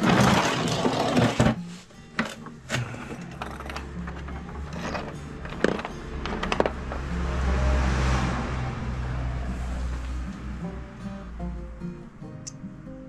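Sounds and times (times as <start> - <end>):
background music: 0.0 - 13.0
metal tools rattling: 2.2 - 6.8.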